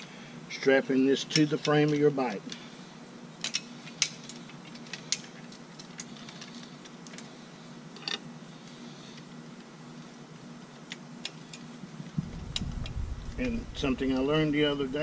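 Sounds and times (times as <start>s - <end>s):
faint low hum: 9.9s - 15.0s.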